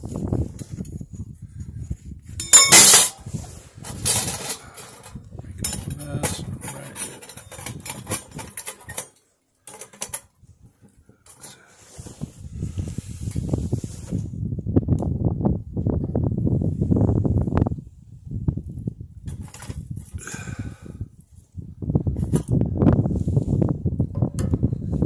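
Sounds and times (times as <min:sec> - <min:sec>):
metal pot supports clinking: 0:02.4 - 0:03.2.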